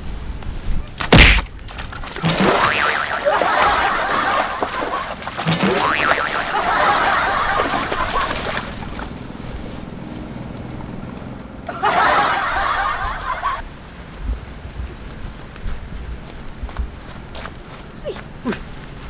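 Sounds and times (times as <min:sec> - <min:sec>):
snickering laughter: 0:02.2 - 0:08.7, 0:11.7 - 0:13.7.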